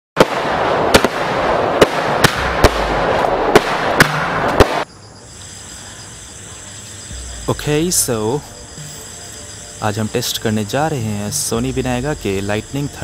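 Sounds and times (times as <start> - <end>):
firework bangs: 0.2 - 4.9
firework crackling: 0.2 - 12.7.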